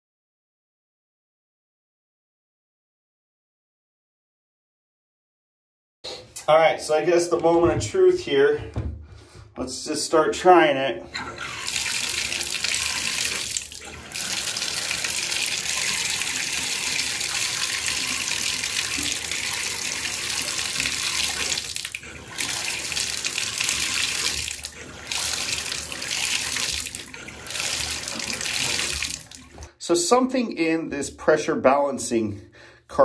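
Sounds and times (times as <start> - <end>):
water pouring from bathtub spout: 11.2 - 29.7.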